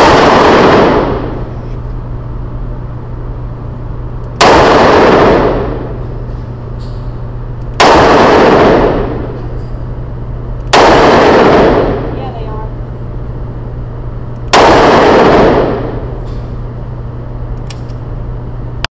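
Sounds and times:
revolver gunshots: 0.0 - 1.5, 4.3 - 7.1, 7.7 - 10.0, 10.6 - 12.4, 14.4 - 16.6.

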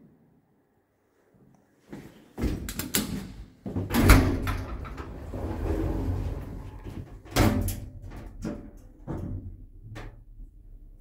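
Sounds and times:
lift doors sliding closed: 3.9 - 8.6.

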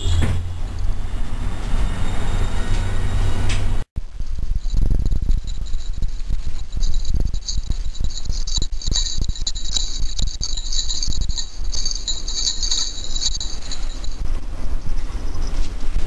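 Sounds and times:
low bumps and rustles: 3.6 - 16.0
collar bell jingling: 4.0 - 14.9.

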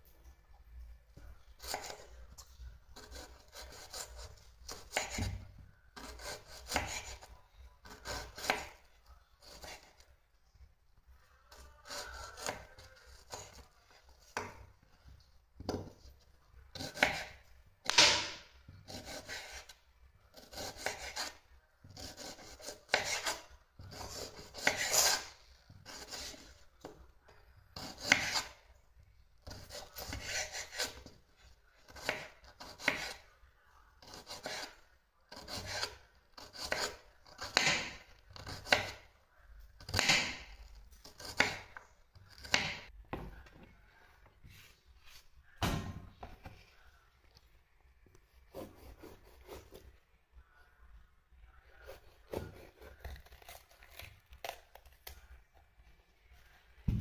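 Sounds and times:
knife slicing onion: 1.6 - 2.1, 3.0 - 10.0, 11.5 - 14.6, 15.6 - 26.9, 27.8 - 28.6, 29.4 - 31.2, 31.8 - 33.2, 34.0 - 39.1, 39.8 - 42.9, 48.5 - 49.9, 51.8 - 55.2.

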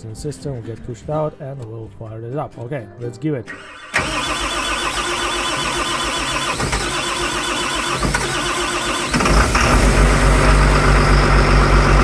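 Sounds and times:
diesel engine cranking: 3.5 - 12.0
diesel engine running: 3.9 - 12.0.

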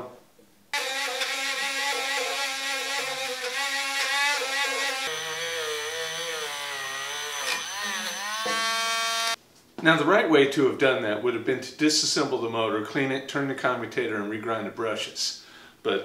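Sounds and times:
rotary tool running: 0.8 - 9.4.

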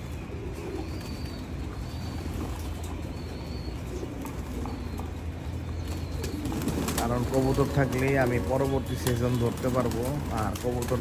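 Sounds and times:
pigeons cooing: 0.0 - 11.0
steady low hum: 0.0 - 11.0
wings flapping: 5.7 - 11.0.

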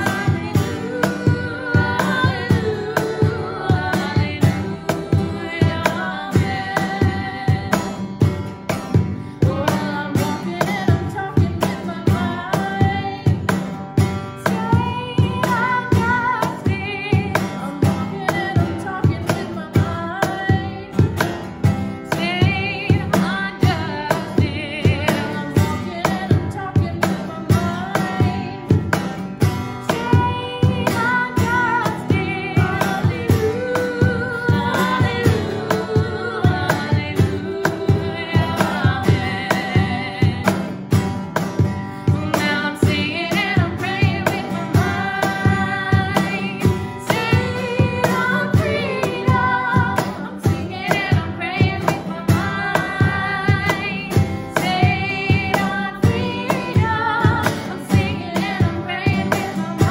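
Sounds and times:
cajon slapped in a beat: 0.0 - 59.9
strummed acoustic guitar: 0.0 - 59.9
women singing in harmony: 0.0 - 59.9.

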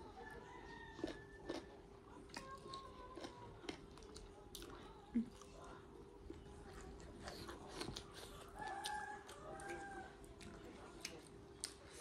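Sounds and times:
distant rooster crowing: 0.2 - 1.7, 8.6 - 10.3
chewing close to microphone: 0.5 - 12.0.

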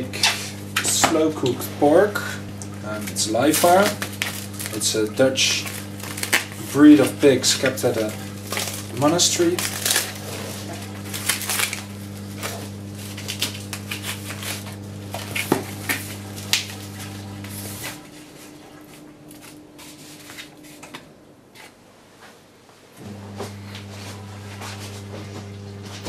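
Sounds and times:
steady low hum: 0.0 - 22.1, 22.9 - 26.0
plastic film crackling: 2.6 - 21.0.

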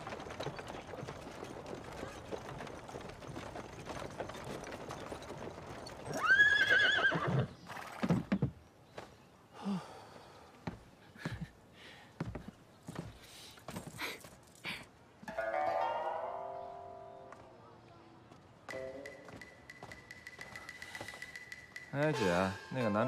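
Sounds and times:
marching troop clatter: 0.0 - 6.2
horse hooves clip-clopping: 0.0 - 8.6, 18.3 - 23.0
horse whinnying: 6.0 - 8.1.

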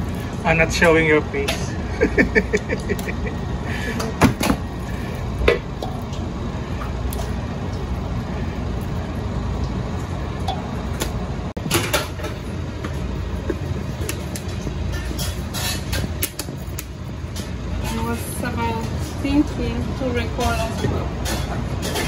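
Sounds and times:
utensil clattering against metal bowl: 18.7 - 22.0.

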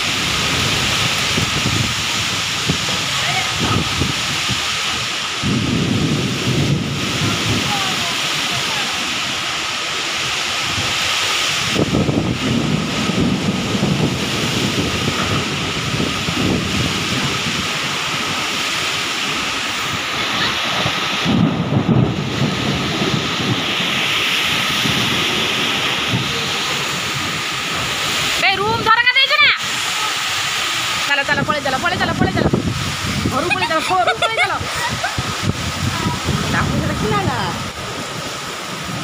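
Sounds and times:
heavy rain hissing: 0.0 - 39.0
strong wind: 0.0 - 39.0
thunder rumbling: 0.0 - 39.0.

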